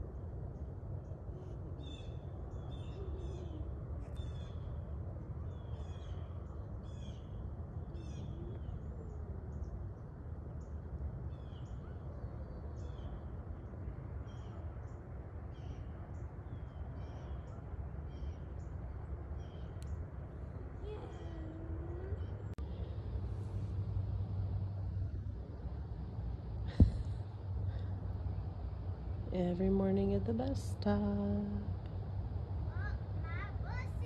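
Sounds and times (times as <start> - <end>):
steady low rumble: 0.0 - 34.0
small birds chirping: 0.6 - 25.2.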